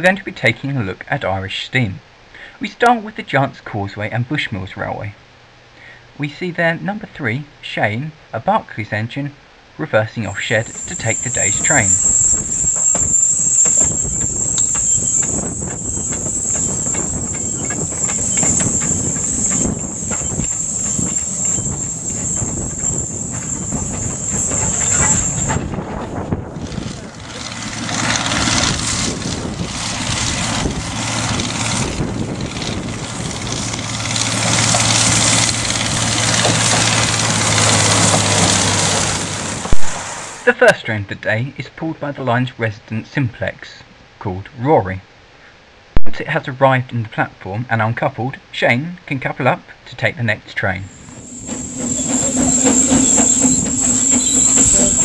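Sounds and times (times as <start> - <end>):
diesel locomotive engine hum: 10.3 - 40.4, 50.8 - 55.0
rushing hiss: 10.4 - 25.9, 33.8 - 40.4, 50.9 - 55.0
high-pitched steam tone: 10.4 - 26.1, 50.8 - 55.0.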